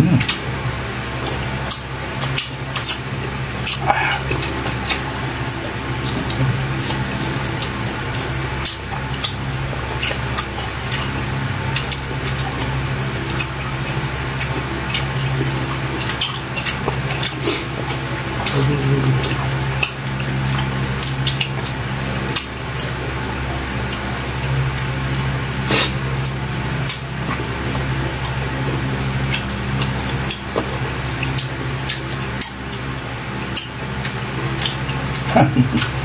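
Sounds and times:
steady low hum: 0.0s - 36.0s
wet eating sounds: 0.0s - 36.0s.

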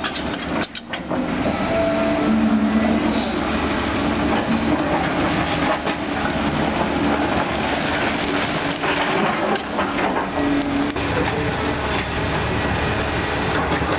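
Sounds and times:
crawler tracks clanking: 0.0s - 13.9s
diesel engine and hydraulics: 0.0s - 13.9s.

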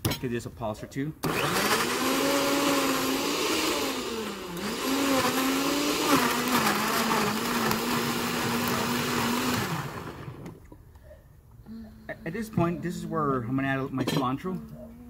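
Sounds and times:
blender motor pureeing: 1.2s - 10.6s.

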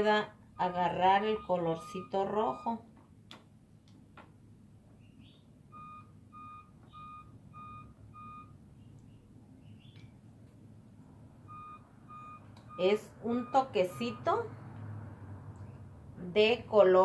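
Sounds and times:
short electronic beeps: 0.6s - 2.8s, 5.7s - 8.6s, 11.5s - 14.3s.

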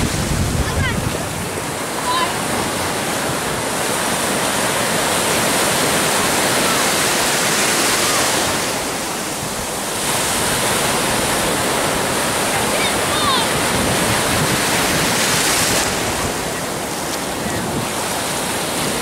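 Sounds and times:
ocean surf breaking: 0.0s - 19.0s.

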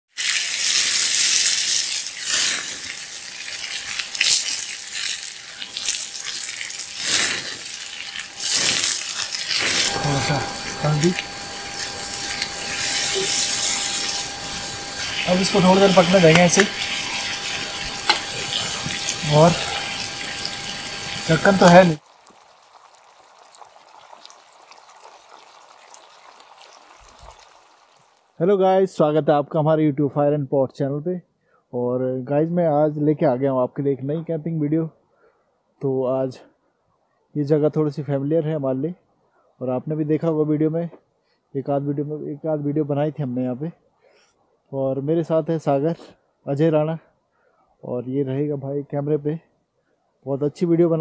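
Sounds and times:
meat sizzling in a skillet: 0.1s - 28.3s
curry simmering with small pops: 21.7s - 28.3s.

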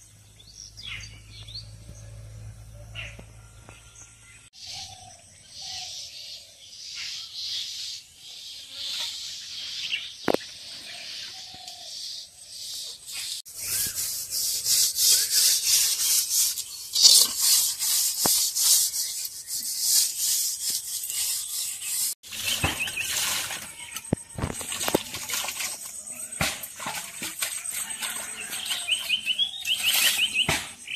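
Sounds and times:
scrubbing steel utensil: 13.5s - 30.4s
water splashing over metal pot: 22.2s - 29.0s.

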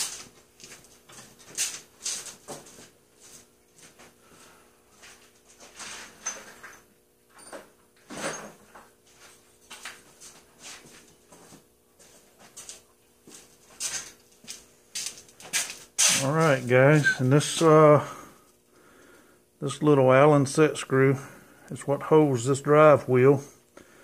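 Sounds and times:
faint steady hum: 0.0s - 24.0s
heavy breathing through mask: 18.0s - 19.5s.

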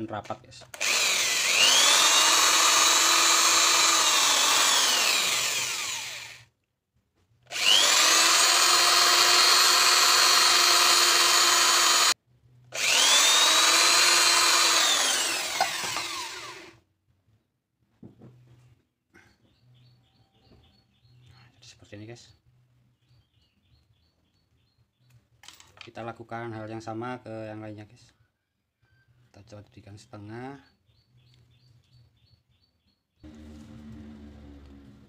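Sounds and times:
electric drill motor whining: 0.7s - 6.5s, 7.5s - 16.8s, 33.3s - 34.9s.

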